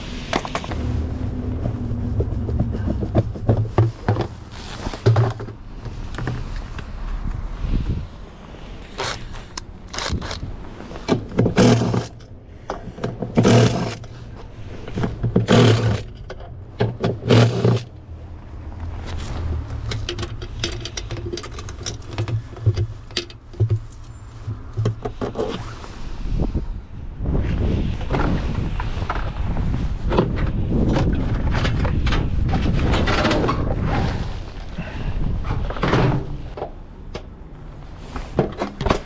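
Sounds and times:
impact driver bursts: 0:11.5 - 0:12.1, 0:13.4 - 0:14.0
clinks of loose parts: 0:19.1 - 0:25.5.

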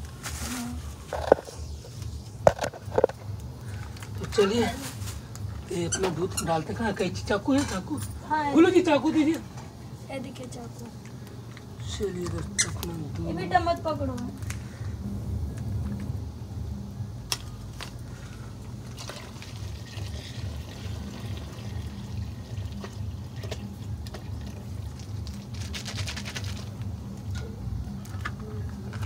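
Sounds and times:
milk pouring into pot of water: 0:18.9 - 0:25.5.

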